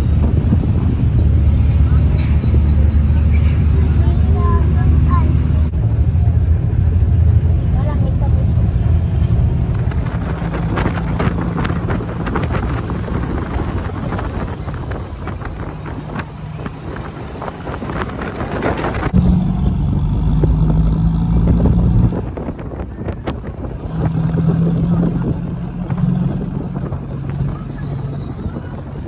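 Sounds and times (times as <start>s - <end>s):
diesel engine running: 0.0s - 29.0s
road noise: 0.0s - 29.0s
vehicle body rattling: 8.4s - 19.2s.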